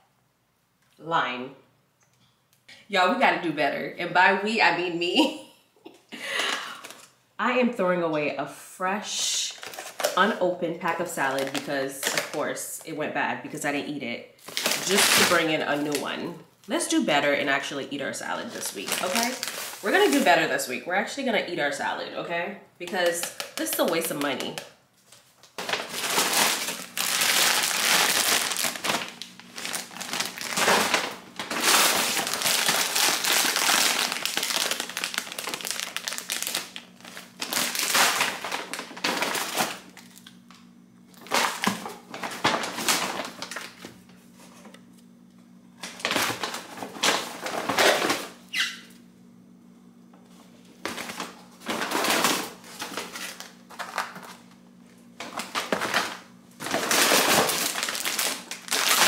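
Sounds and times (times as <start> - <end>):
grocery bags rustling: 9.5 - 12.6, 14.4 - 16.2, 18.1 - 20.7, 23.0 - 40.5, 41.1 - 44.6, 45.8 - 48.7, 50.6 - 59.0.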